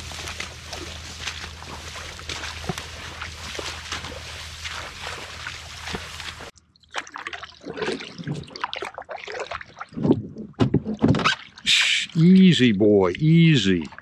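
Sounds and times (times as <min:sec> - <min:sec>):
dry grass rustling: 0:00.0 - 0:06.5
paddle splashing water: 0:00.0 - 0:10.2
water sloshing and trickling: 0:00.0 - 0:14.0.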